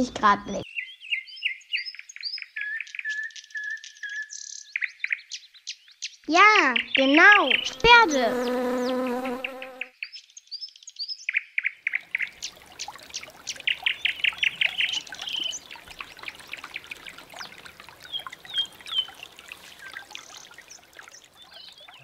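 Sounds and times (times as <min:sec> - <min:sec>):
birds singing and chirping: 0:00.5 - 0:22.0
brook trickling: 0:11.8 - 0:22.0.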